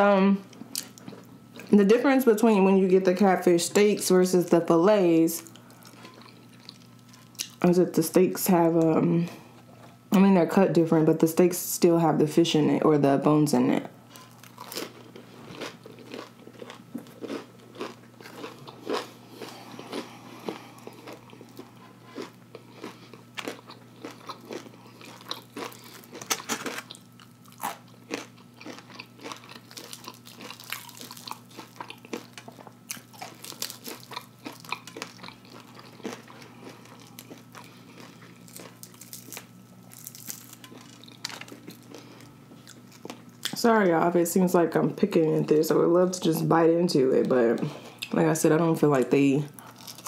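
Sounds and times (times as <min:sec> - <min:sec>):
faint low hum: 0:00.0 - 0:50.0
chewing: 0:05.4 - 0:07.6, 0:14.2 - 0:43.6
crunching fried crust: 0:14.2 - 0:43.6, 0:49.6 - 0:50.0.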